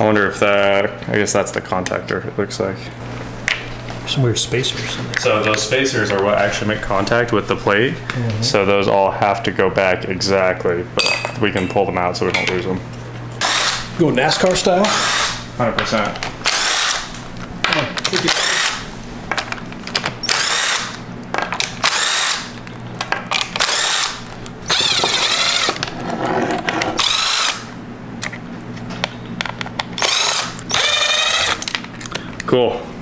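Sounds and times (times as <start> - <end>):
impact driver bursts: 13.4 - 13.9, 14.8 - 15.4, 16.4 - 17.1, 18.2 - 18.9, 20.2 - 20.9, 21.8 - 22.5, 23.6 - 25.8, 27.0 - 27.7, 30.0 - 31.7.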